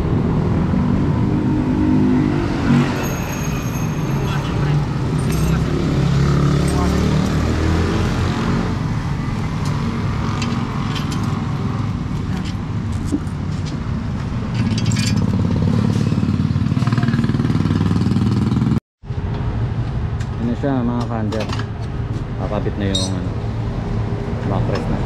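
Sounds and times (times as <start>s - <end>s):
metallic clinks of tools: 22.9s - 23.2s.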